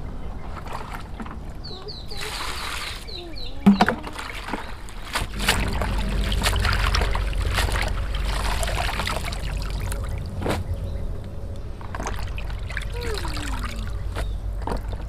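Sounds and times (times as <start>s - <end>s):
hands swishing leaves in water: 2.1s - 3.2s, 4.0s - 10.8s, 11.9s - 15.0s
water dripping: 3.6s - 15.0s
water poured into plastic basin: 3.9s - 10.1s.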